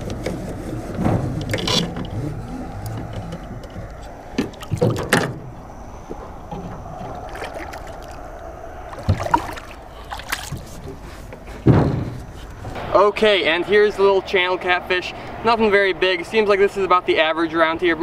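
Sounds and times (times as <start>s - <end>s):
knocks and clatters in boat: 0.0s - 5.5s, 9.0s - 12.8s
water lapping around boat: 0.0s - 12.7s.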